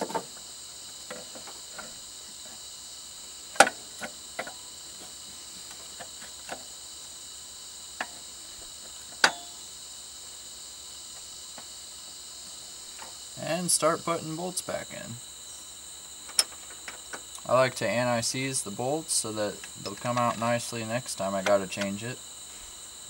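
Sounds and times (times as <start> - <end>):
metal clunks: 9.2 - 9.6.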